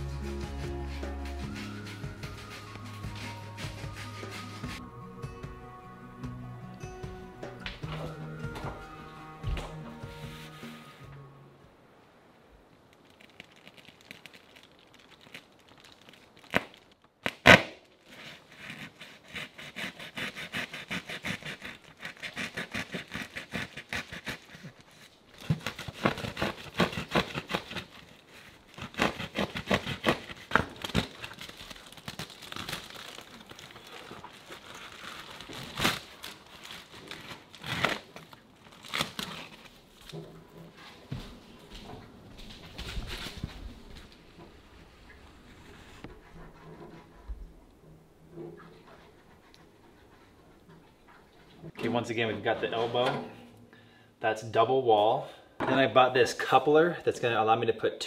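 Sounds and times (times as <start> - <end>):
knife sawing through fabric: 0.5 - 4.8, 18.1 - 31.1.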